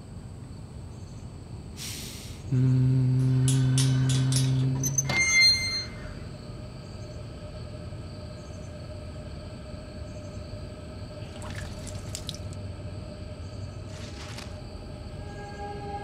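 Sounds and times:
eerie ambient drone: 0:02.3 - 0:16.0
watery splashing: 0:11.2 - 0:12.6.

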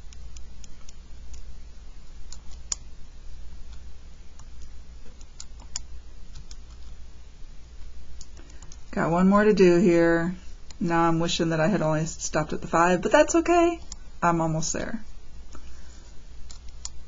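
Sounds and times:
calculator keys clicking: 0:04.4 - 0:06.9.

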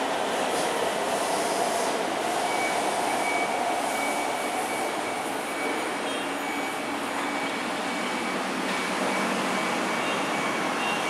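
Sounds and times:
metro train rumbling: 0:00.0 - 0:06.0.

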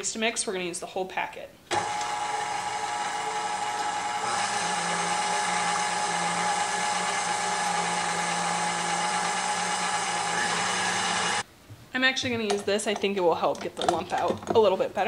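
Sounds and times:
electric mixer motor whirring: 0:01.7 - 0:11.4.

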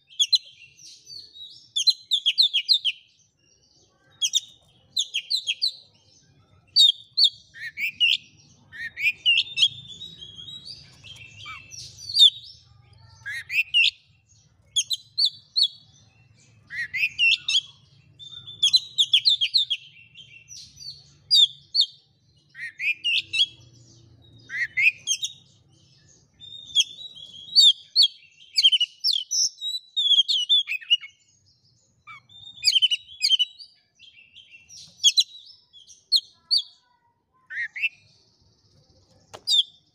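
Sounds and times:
bird singing: 0:00.0 - 0:39.9.

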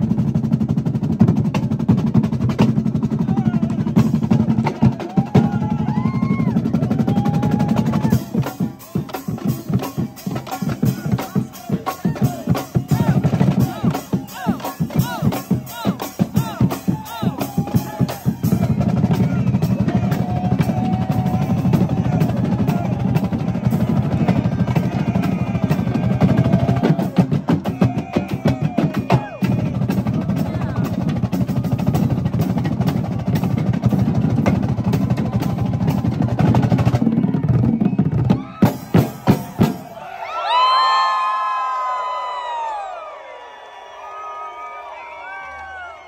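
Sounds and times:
marching drums rolling: 0:00.0 - 0:40.8
voices shouting: 0:03.2 - 0:32.4, 0:38.3 - 0:46.0.

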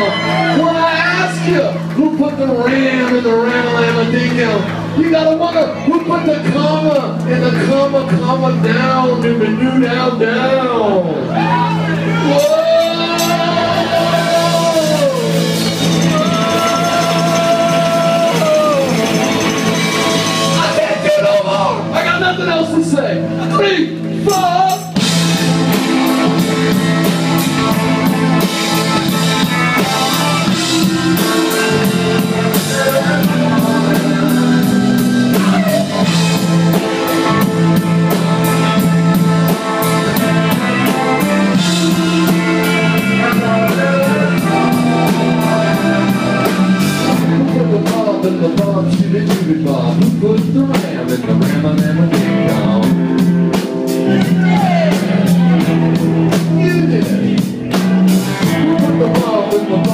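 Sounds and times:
electric guitar: 0:00.0 - 0:59.9
keyboard chords: 0:00.0 - 0:59.9
drum kit: 0:11.2 - 0:59.9.

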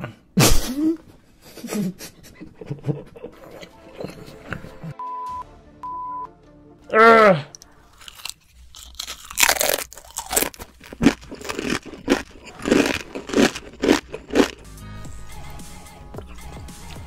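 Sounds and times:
crunchy chip chewing: 0:07.5 - 0:14.7.

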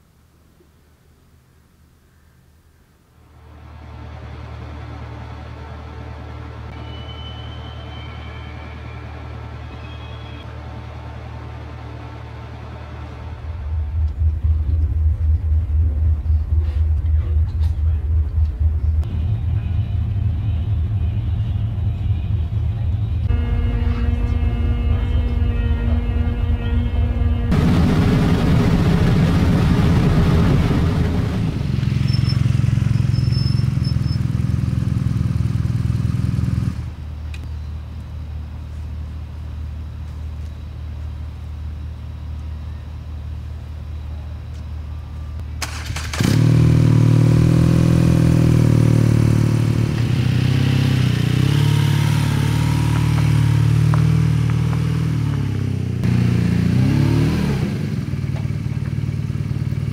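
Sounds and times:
motorcycle engine running: 0:13.4 - 0:37.0, 0:45.6 - 0:59.9.

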